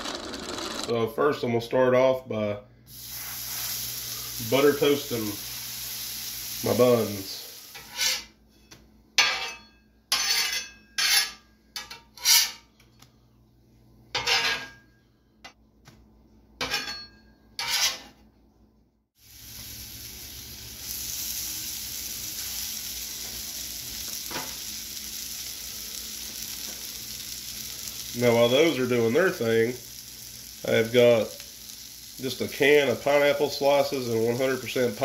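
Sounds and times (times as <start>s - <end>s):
meat sizzling on griddle: 2.9s - 8.2s, 19.2s - 35.0s
metal spatula scraping griddle: 7.7s - 8.3s, 9.2s - 12.7s, 14.2s - 14.8s, 17.6s - 18.2s.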